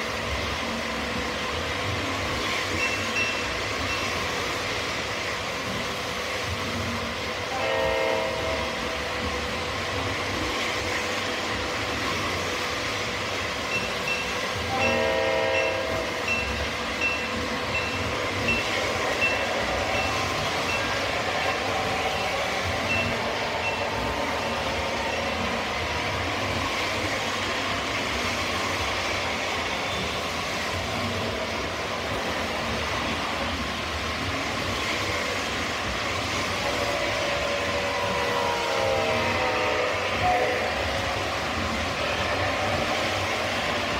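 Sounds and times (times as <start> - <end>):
model locomotive horn: 7.5 - 8.9, 14.6 - 16.4, 37.0 - 41.0.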